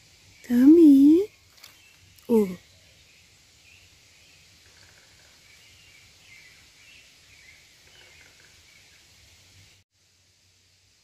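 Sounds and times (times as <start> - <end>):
distant birds chirping: 0.0 - 9.8.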